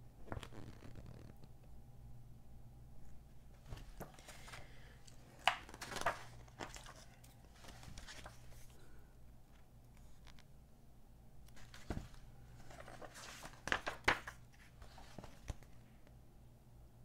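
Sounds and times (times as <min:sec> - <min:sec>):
page flaps: 0:00.3 - 0:01.4, 0:05.4 - 0:08.7, 0:11.5 - 0:15.7
magazine pages rustling: 0:03.6 - 0:08.8, 0:11.5 - 0:15.8.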